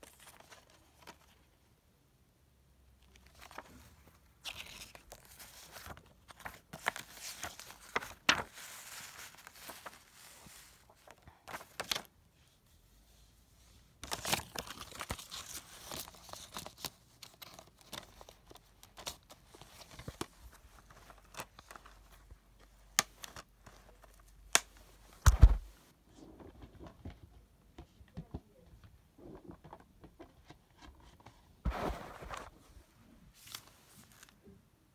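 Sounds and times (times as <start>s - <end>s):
paper and plastic rustling: 3.0s - 12.1s, 30.7s - 34.4s.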